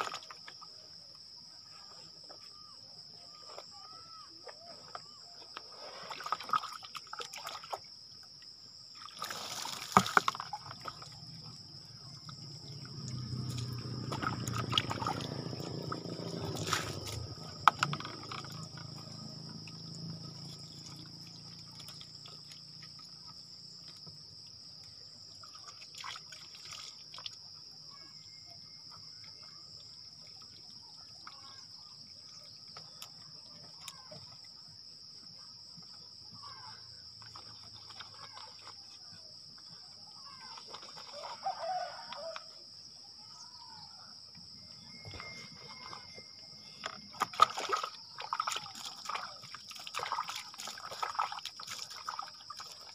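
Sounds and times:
water being poured: 9.0 - 11.3, 12.2 - 19.8, 46.8 - 52.9.

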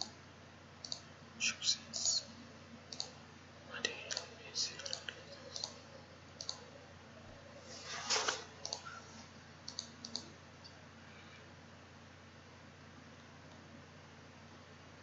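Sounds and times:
faint hum: 0.0 - 15.0
computer mouse buttons clicking: 0.8 - 1.1, 2.9 - 3.2, 4.1 - 5.8, 6.4 - 6.6, 8.6 - 8.9, 9.7 - 10.3.

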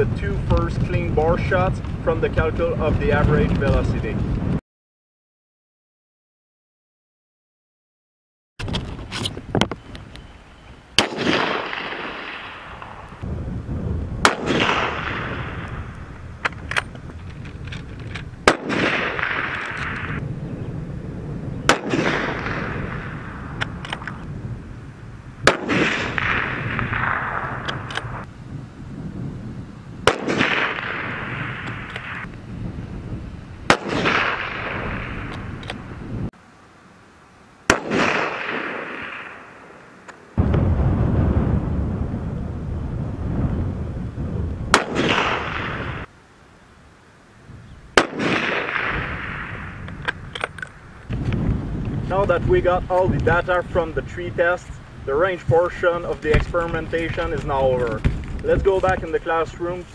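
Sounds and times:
rifle shots with rolling echo: 11.0 - 13.2, 14.2 - 16.0, 18.4 - 20.2, 21.6 - 24.2, 25.4 - 28.3, 30.0 - 32.3, 33.7 - 35.8, 37.7 - 41.3, 44.7 - 46.1, 48.0 - 51.0.

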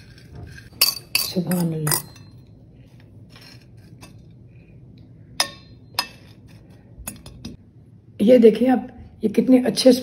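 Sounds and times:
metal fork clinking on plate: 0.7 - 2.5.

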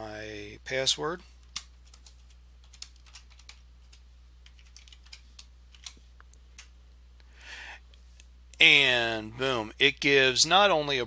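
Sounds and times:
soft keyboard typing: 1.4 - 6.7.

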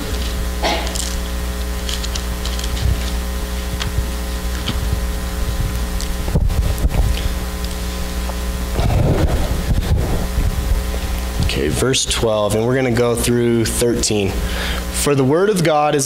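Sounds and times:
electrical hum and buzz: 0.0 - 16.0
book pages turning: 0.2 - 4.8.

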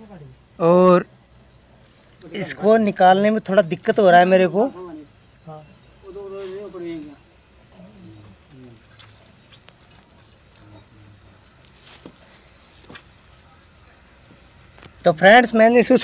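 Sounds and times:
crickets chirping: 0.0 - 16.0
soft hum of voice: 7.7 - 9.4
faint clicks: 8.7 - 10.3.

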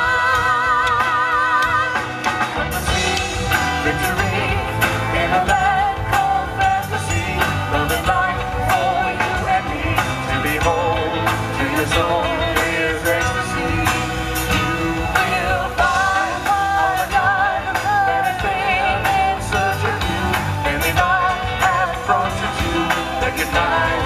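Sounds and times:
woman singing: 0.0 - 10.5, 15.1 - 24.0
drum kit with cymbals: 0.0 - 24.0
electric bass guitar: 0.0 - 24.0.

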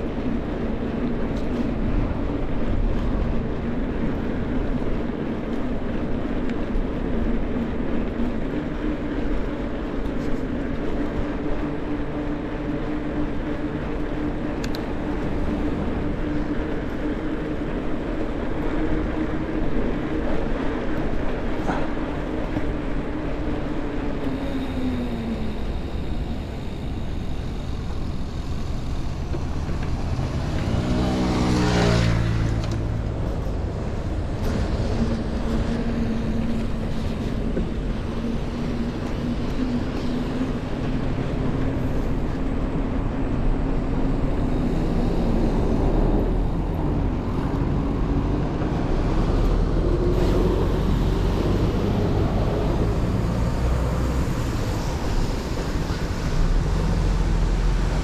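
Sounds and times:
low traffic rumble: 0.0 - 58.0
motor vehicle passing: 27.0 - 38.0.

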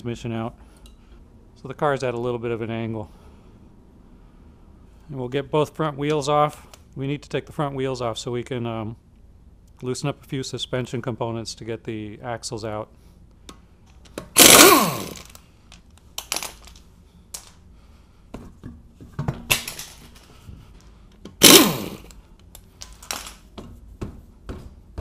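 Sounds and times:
impact wrench spinning bolts: 14.3 - 15.4, 21.4 - 22.1.

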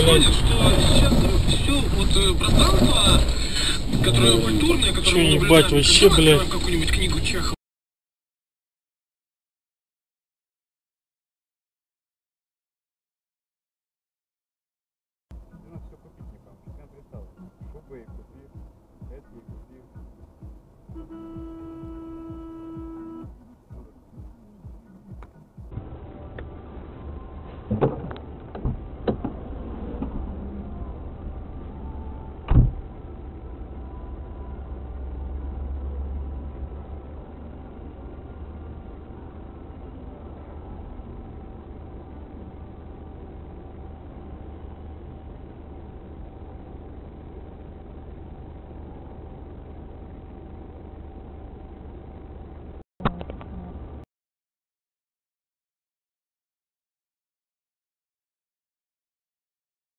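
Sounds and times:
car engine and road rumble: 0.0 - 7.6, 15.3 - 54.1
faint steady tone: 15.3 - 27.6
loud thump: 32.5 - 32.8.

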